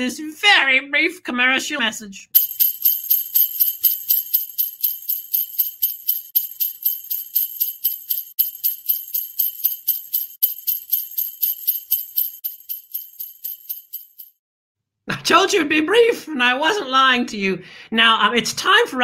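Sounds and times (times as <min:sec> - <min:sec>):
jingle bells shaken: 0:02.4 - 0:14.4.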